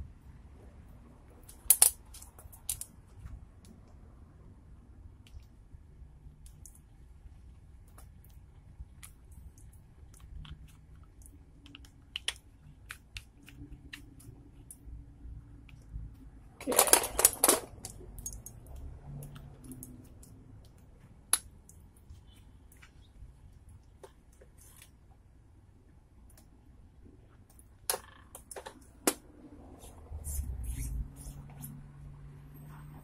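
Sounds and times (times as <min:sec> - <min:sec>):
small clicks and scrapes: 0:24.0 - 0:25.0.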